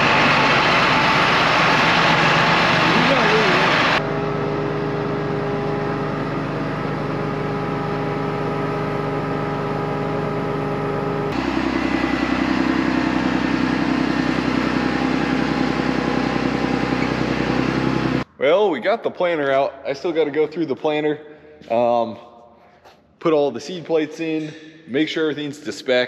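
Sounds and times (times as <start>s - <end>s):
tractor diesel engine idling: 0.0s - 18.5s.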